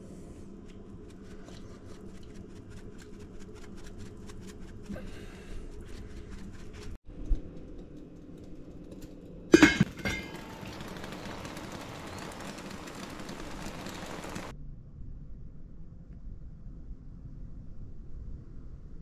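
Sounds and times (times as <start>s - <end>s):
lid clanking on metal pot: 9.6s - 10.4s.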